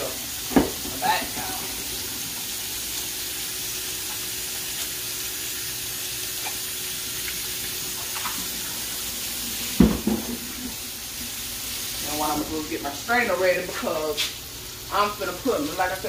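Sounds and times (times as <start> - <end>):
chicken sizzling in oil: 0.0 - 16.0
tap running into sink: 0.5 - 1.5, 9.8 - 10.8.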